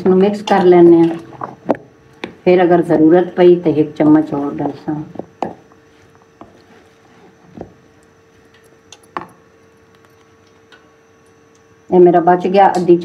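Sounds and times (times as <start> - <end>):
faint steady hum: 0.0 - 13.0.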